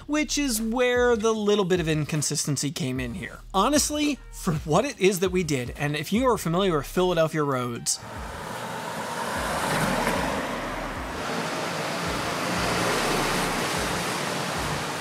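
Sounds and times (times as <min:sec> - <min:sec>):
tyres hissing on wet pavement: 0:08.0 - 0:15.0.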